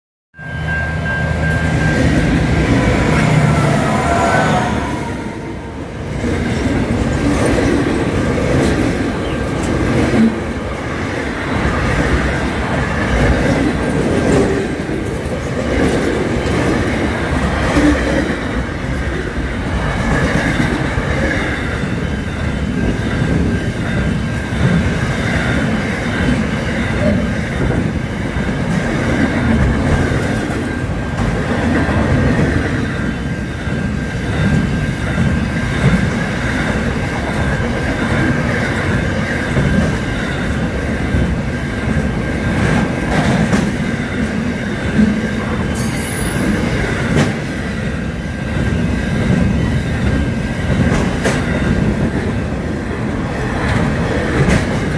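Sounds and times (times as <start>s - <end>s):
locomotive engine: 0.4s - 17.8s
wagons rumbling over rails: 0.4s - 54.9s
train knocks: 1.2s - 54.9s.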